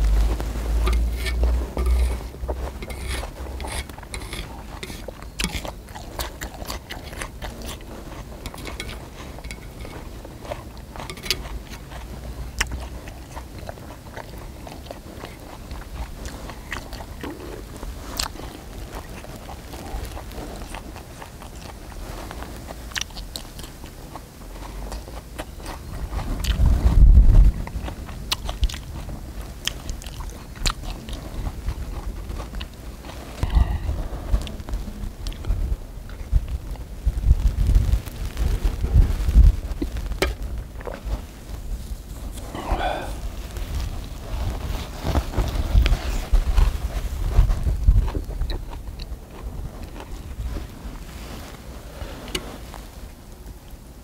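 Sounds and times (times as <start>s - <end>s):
low rumble: 0.0s - 5.2s, 33.4s - 52.1s
person chewing: 0.0s - 36.8s, 39.3s - 53.8s.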